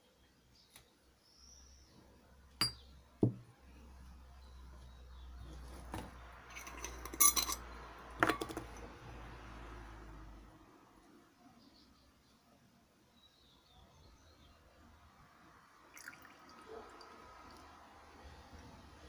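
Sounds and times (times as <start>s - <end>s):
glass and metal clinking: 2.6s - 3.4s, 6.5s - 8.9s.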